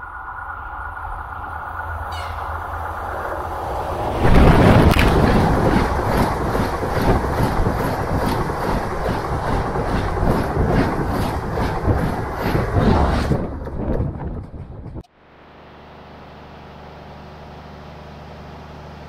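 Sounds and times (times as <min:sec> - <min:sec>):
train passing at speed: 0:00.0 - 0:15.0
wheels clacking over rail: 0:02.0 - 0:15.0.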